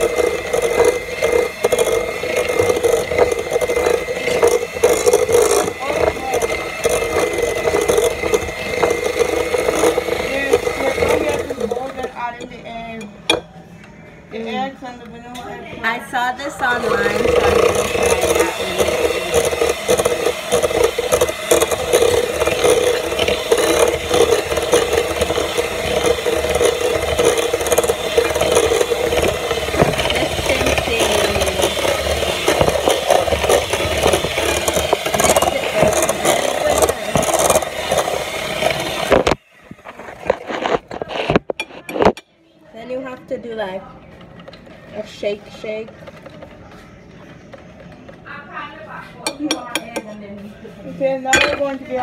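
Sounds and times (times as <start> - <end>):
electric mixer running: 0.0 - 13.4, 15.8 - 42.2.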